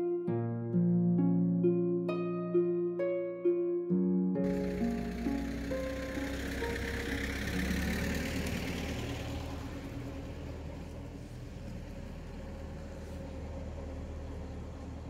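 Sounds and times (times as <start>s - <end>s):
tractor engine droning: 4.4s - 15.0s.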